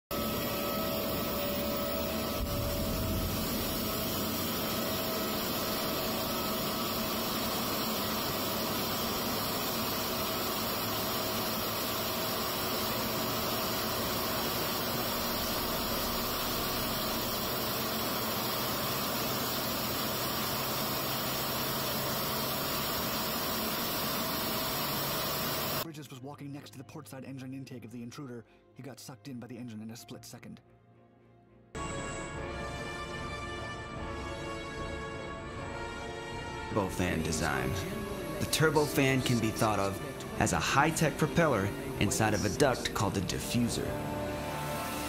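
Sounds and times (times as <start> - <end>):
faint engine whine: 0.1 - 25.8, 36.8 - 45.0
jet engine rushing: 0.1 - 25.8, 36.8 - 45.0.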